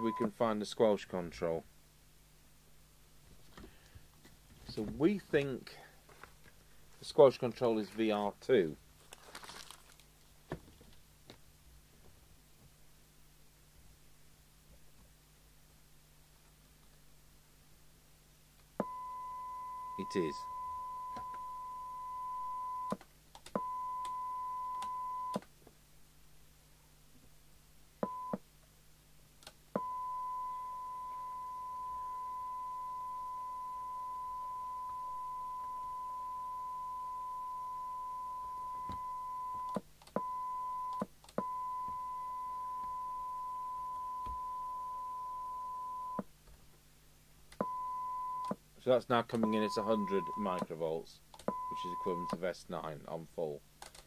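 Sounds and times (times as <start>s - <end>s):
steady test tone through loudspeaker: 0.0s - 0.5s, 18.8s - 22.9s, 49.4s - 50.8s, 51.6s - 53.0s.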